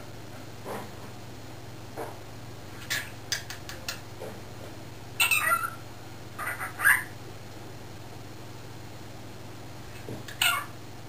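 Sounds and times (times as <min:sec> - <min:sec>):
cockatiel chirping and calling: 0:05.2 - 0:05.8, 0:06.4 - 0:07.1, 0:10.3 - 0:10.7.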